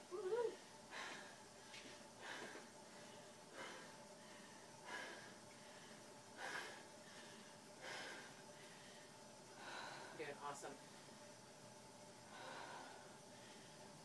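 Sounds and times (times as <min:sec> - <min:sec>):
person breathing hard: 0:00.9 - 0:10.2, 0:12.3 - 0:14.0.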